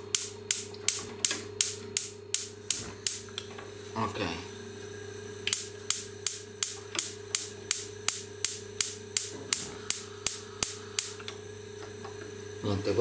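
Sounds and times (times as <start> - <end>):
gas hob spark igniter clicking: 0.1 - 3.5, 5.4 - 11.4.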